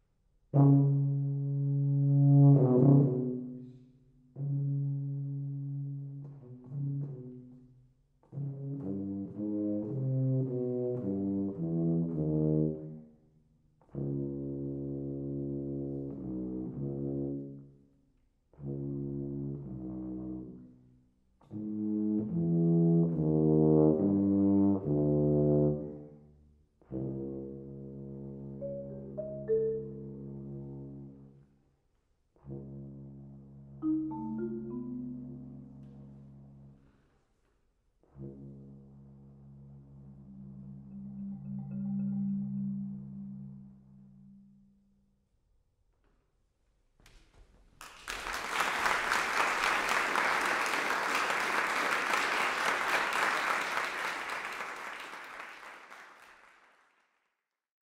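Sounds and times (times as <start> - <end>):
tuba low note: 0.5 - 13.2, 13.8 - 17.8, 18.5 - 20.8, 21.4 - 31.4, 32.4 - 36.9, 38.0 - 41.5
marimba notes: 28.6 - 30.4, 33.8 - 35.8, 40.7 - 44.3
audience applauding: 47.8 - 57.1.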